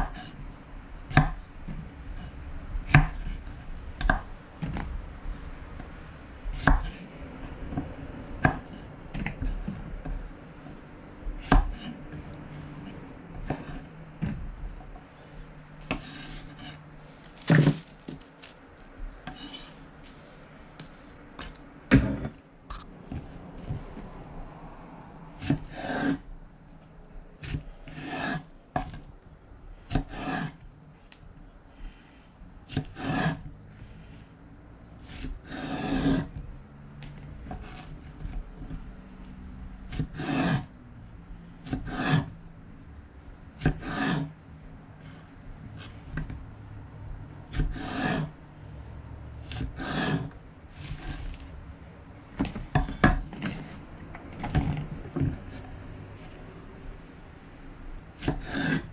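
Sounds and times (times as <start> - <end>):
knife on wooden cutting board: 11.4 - 12.0, 12.8 - 14.4, 15.8 - 18.5, 19.3 - 19.9, 25.4 - 26.2, 27.4 - 29.1, 29.9 - 30.6, 32.7 - 33.4, 35.0 - 36.3, 39.9 - 40.7, 41.6 - 42.3, 43.6 - 44.3, 47.5 - 48.3, 49.5 - 51.5, 58.2 - 58.9.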